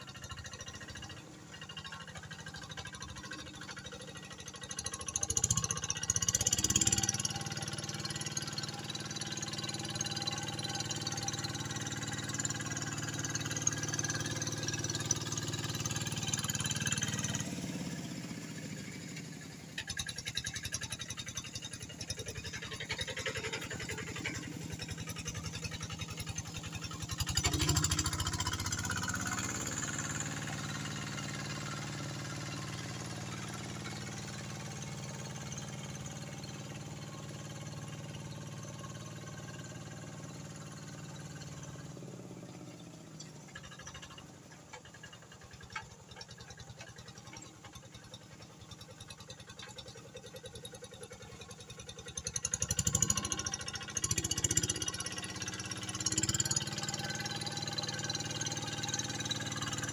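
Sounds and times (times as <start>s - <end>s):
diesel tractor engine running: 0.0s - 59.9s.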